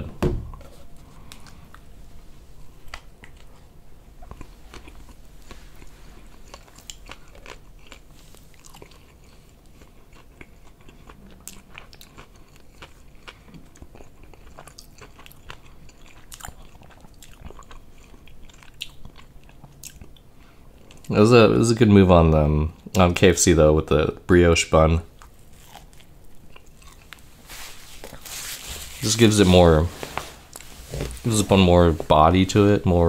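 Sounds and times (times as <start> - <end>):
person chewing crunchy food: 2.6 - 21.1, 25.1 - 29.2.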